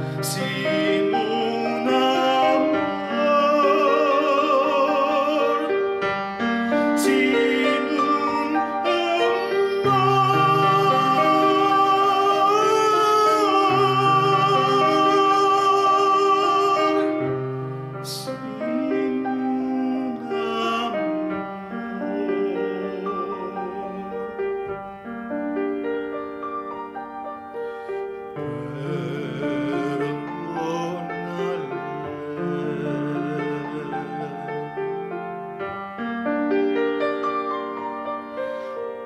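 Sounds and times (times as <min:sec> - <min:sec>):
man singing operatically: 0:00.0 - 0:06.0, 0:06.6 - 0:17.4, 0:18.0 - 0:24.5, 0:28.4 - 0:35.1
grand piano: 0:00.0 - 0:39.0.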